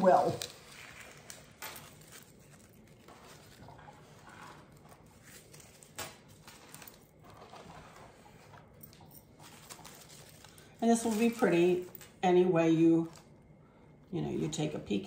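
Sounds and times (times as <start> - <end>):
rustling of artificial flowers: 0.0 - 13.4.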